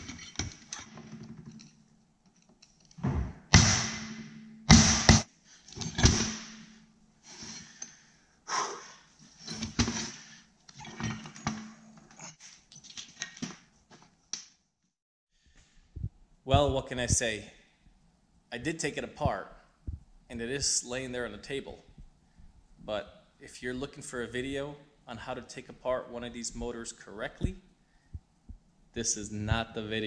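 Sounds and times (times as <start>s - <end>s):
metal parts clanking on steel tray: 5.7s - 6.7s.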